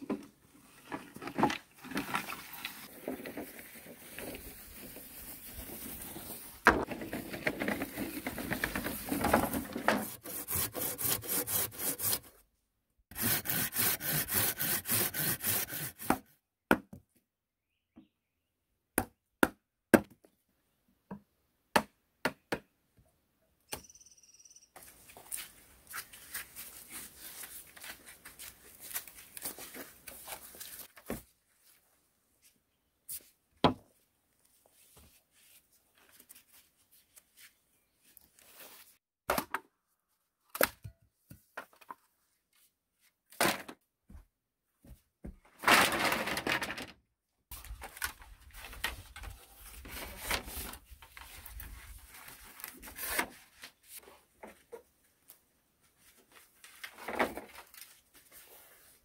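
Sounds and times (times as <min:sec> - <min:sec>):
bamboo poles rustling and knocking: 0:00.0 - 0:10.9, 0:24.8 - 0:59.0.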